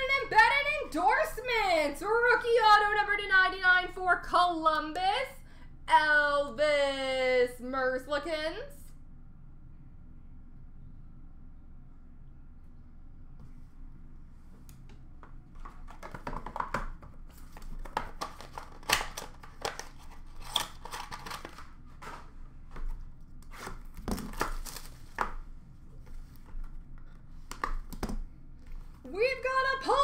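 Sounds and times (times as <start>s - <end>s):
card pack packaging crinkling and ripping: 17.3s - 25.4s.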